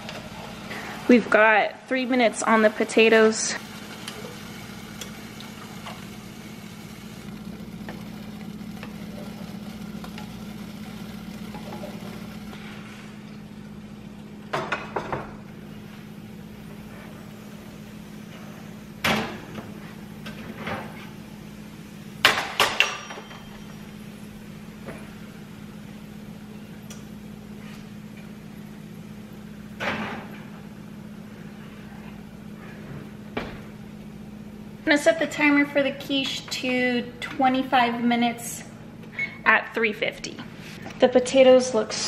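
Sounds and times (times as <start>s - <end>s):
eggs sizzling in a pan: 0.0s - 29.8s
steady low hum: 0.0s - 42.0s.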